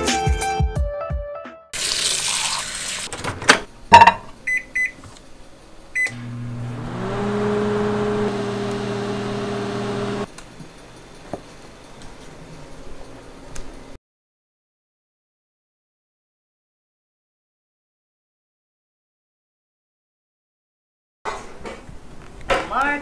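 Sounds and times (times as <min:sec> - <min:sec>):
faucet running: 0:01.8 - 0:03.1
microwave keypad beeps: 0:04.5 - 0:05.0
microwave humming: 0:06.0 - 0:10.3.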